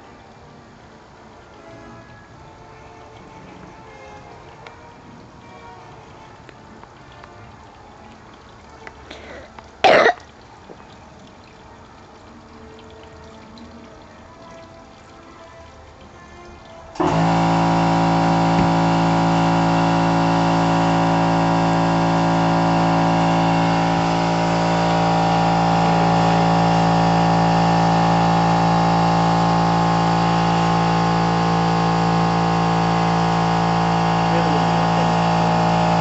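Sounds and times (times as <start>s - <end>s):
steady machine-like drone: 17.0s - 36.0s.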